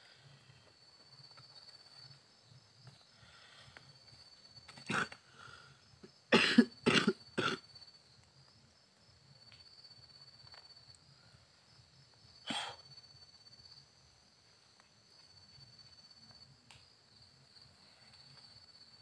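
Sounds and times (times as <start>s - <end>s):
insects chirring: 0.0s - 19.0s
person coughing: 6.3s - 7.6s, 12.5s - 12.8s.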